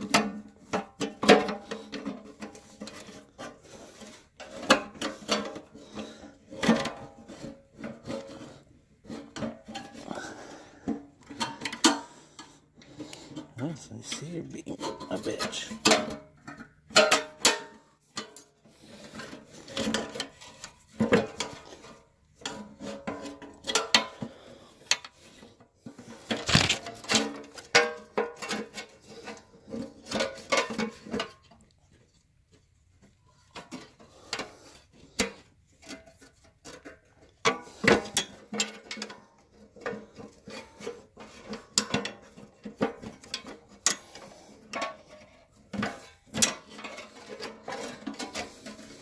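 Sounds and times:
metallic clinks and scrapes of tools: 11.2 - 49.0.

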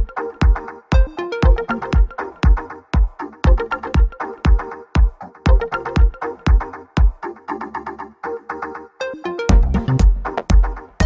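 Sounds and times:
chopped synth notes: 0.0 - 7.2
kick drum: 0.0 - 7.2, 9.5 - 11.0
electronic music: 0.0 - 11.0.

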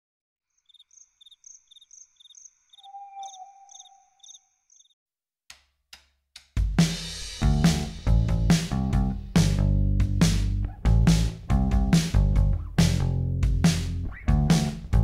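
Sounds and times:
cricket chirping: 0.5 - 5.0
held low tone: 2.8 - 4.2
music with drums: 6.4 - 15.0.

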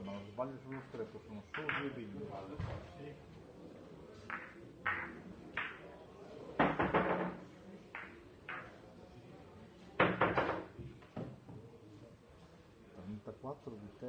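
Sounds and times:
billiard balls clacking: 1.5 - 2.0, 4.3 - 5.9, 6.6 - 8.8, 10.0 - 10.8.

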